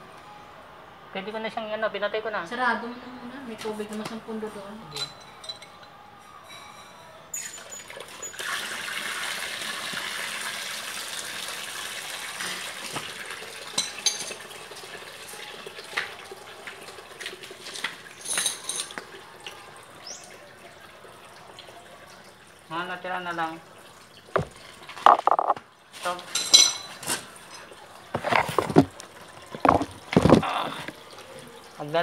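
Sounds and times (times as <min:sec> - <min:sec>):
wrench clinking on metal fittings: 0:05.0 - 0:05.9, 0:18.2 - 0:18.9
water rushing from pipe: 0:07.5 - 0:32.0.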